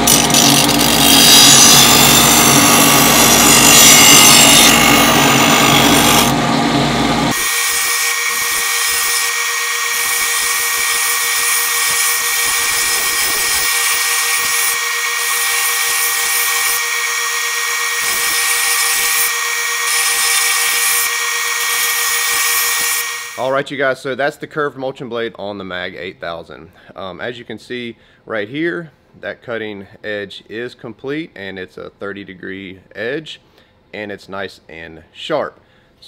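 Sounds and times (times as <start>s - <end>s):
grinding wheel on steel blade: 0.0s - 23.4s.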